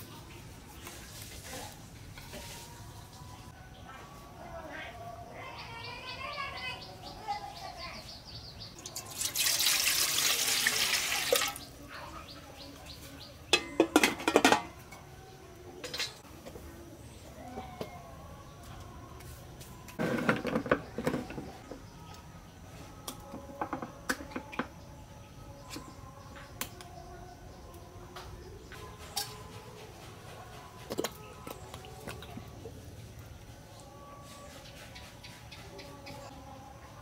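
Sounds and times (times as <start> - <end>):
water pouring into metal pot: 8.8 - 11.6.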